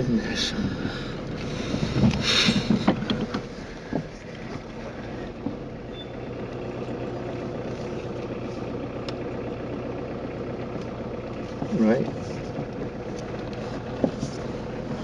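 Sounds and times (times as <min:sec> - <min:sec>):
car engine hum: 0:00.0 - 0:15.0
road noise: 0:00.0 - 0:15.0.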